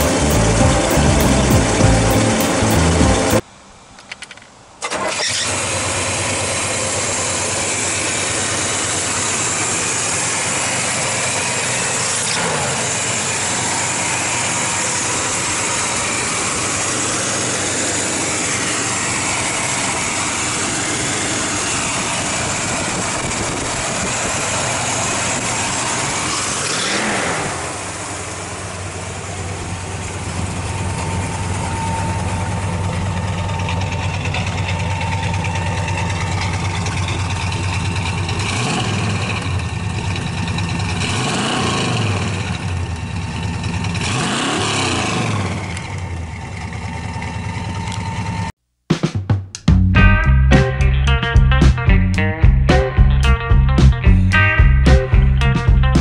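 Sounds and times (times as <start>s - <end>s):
engine revving: 0.0s - 3.4s, 5.0s - 31.0s, 38.0s - 42.9s, 43.8s - 46.2s
car engine starting and idling: 0.0s - 3.5s, 4.2s - 48.6s.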